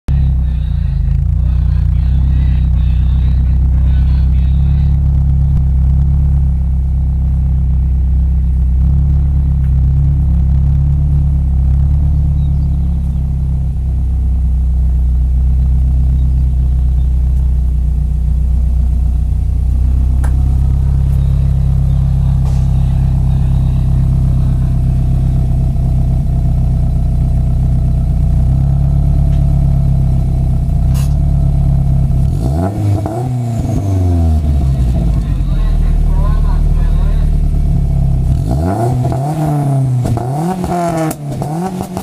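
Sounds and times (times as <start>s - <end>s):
car engine idling: 0.0s - 42.0s
engine revving: 15.0s - 42.0s.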